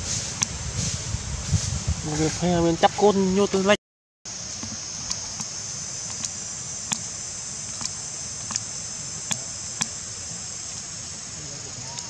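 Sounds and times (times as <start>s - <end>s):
high-pitched insect drone: 2.0s - 12.0s
sharp clicks: 6.1s - 7.1s, 7.7s - 10.0s.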